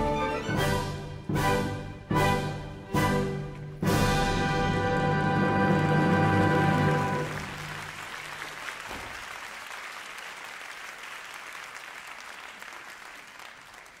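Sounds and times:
orchestra chord: 0:00.0 - 0:07.4
audience applauding: 0:04.8 - 0:14.0.

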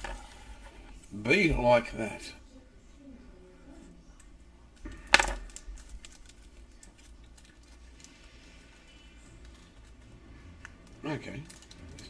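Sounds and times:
plastic bag crinkling: 0:04.8 - 0:12.0
sharp plastic crackle: 0:04.8 - 0:12.0.

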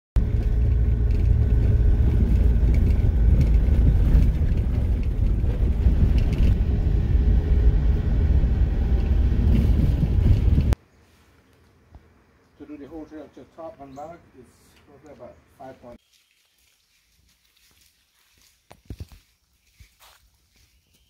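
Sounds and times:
vehicle driving rumble: 0:00.2 - 0:10.8.

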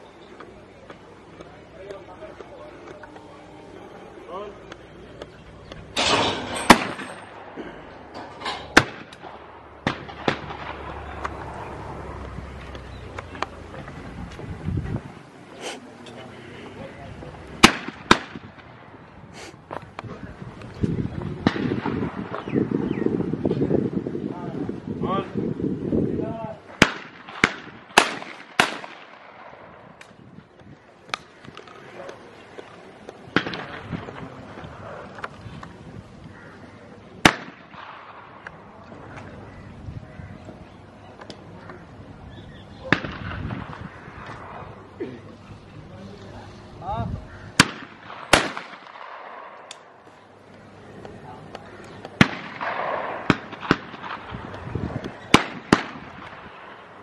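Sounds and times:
fainter distant shots: 0:00.5 - 0:13.6, 0:16.9 - 0:19.1, 0:21.2 - 0:22.5, 0:26.6 - 0:30.2, 0:30.9 - 0:35.1, 0:37.2 - 0:39.6, 0:42.7 - 0:45.0, 0:47.3 - 0:57.0
loud shotgun shots: 0:06.0 - 0:07.7, 0:08.7 - 0:11.1, 0:17.6 - 0:18.7, 0:21.4 - 0:22.4, 0:26.7 - 0:29.8, 0:33.3 - 0:34.0, 0:37.2 - 0:38.4, 0:42.8 - 0:44.6, 0:47.6 - 0:49.7, 0:52.2 - 0:54.5, 0:55.2 - 0:56.8.

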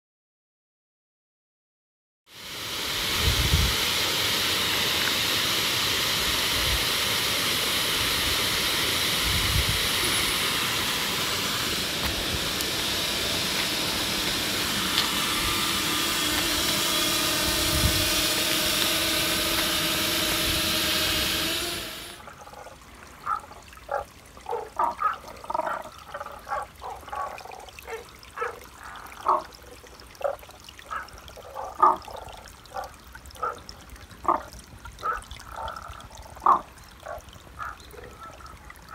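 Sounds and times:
waterfall pouring: 0:02.3 - 0:38.9
frogs calling: 0:22.2 - 0:33.6, 0:34.2 - 0:38.9
faint water trickle: 0:22.2 - 0:38.9.

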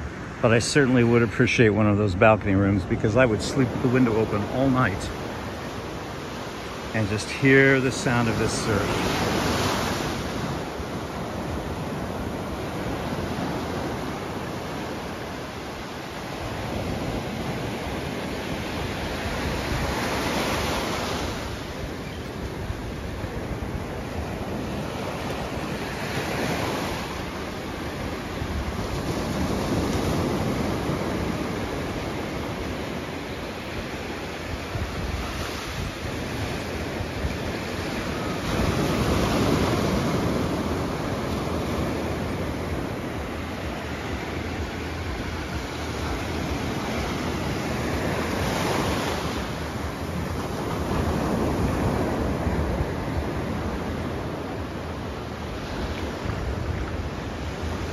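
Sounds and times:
small waves breaking on sand: 0:00.0 - 0:57.9.

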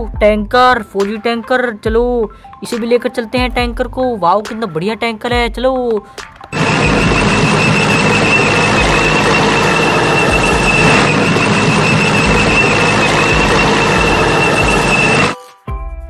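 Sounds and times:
engine with high-pitched whine: 0:06.6 - 0:15.4.

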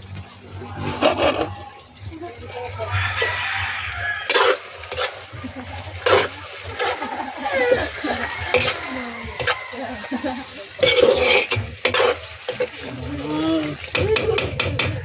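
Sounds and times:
metal ladle scraping a wok: 0:00.6 - 0:01.9, 0:03.2 - 0:13.0.

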